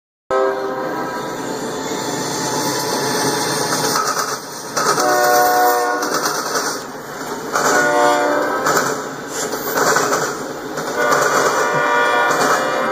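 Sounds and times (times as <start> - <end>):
locomotive air horn blasts: 0.3 - 1.0, 5.0 - 6.2, 7.6 - 8.7, 11.0 - 12.9
train wheels clattering over crossing: 2.3 - 12.9.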